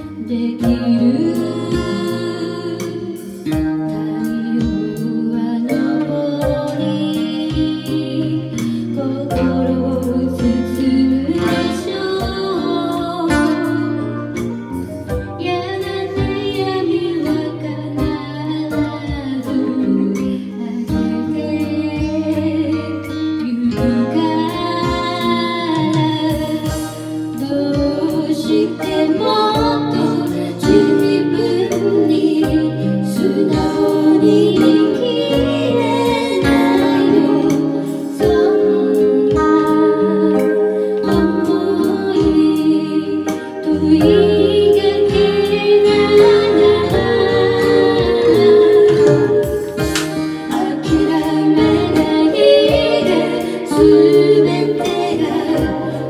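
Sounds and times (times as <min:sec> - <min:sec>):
woman singing: 0:00.0 - 0:14.4, 0:15.2 - 0:56.0
electronic keyboard: 0:00.0 - 0:56.0
steady beat: 0:29.5 - 0:42.6, 0:43.8 - 0:56.0.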